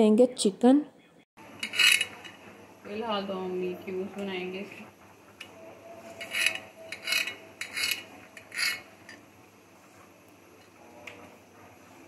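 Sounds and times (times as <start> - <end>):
knife scraping on glass board: 1.6 - 2.3, 6.0 - 9.2.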